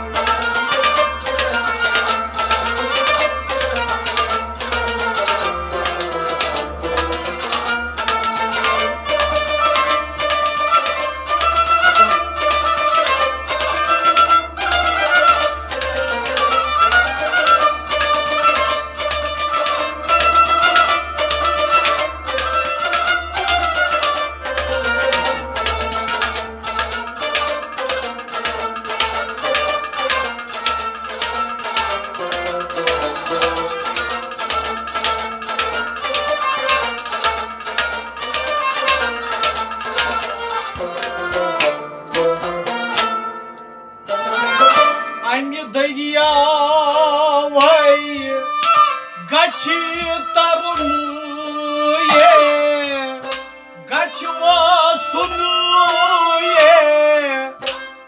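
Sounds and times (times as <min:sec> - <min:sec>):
plucked rabab melody: 0:00.0 - 0:58.0
held melody with wavering vibrato: 0:47.9 - 0:55.2.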